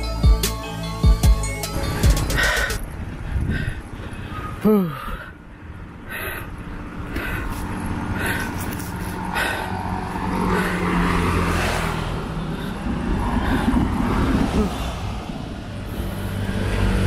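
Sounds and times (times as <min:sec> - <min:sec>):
wind rushing over microphone: 0:01.7 - 0:06.0, 0:06.6 - 0:17.0
vehicle engine running: 0:05.5 - 0:14.7.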